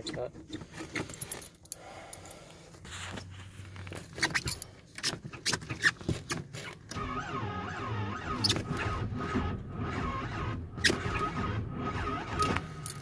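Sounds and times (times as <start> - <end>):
keys jangling: 1.0 - 2.4, 12.4 - 13.0.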